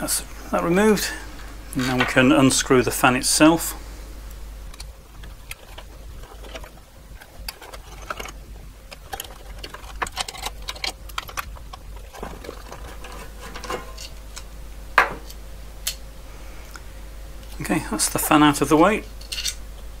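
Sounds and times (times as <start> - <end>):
screwdriver clicks and metal scrapes: 7.5 - 14.2.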